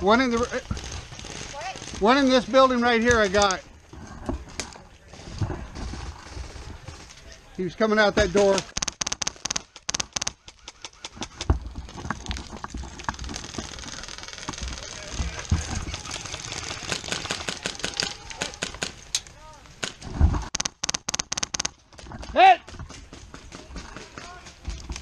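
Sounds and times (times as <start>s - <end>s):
airsoft guns firing: 8.2s - 11.5s, 13.3s - 19.0s, 19.8s - 21.8s
movement noise: 10.8s - 20.5s.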